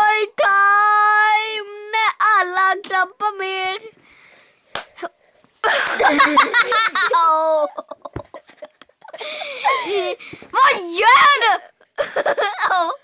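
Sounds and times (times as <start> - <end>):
child laughing: 5.6 - 13.0.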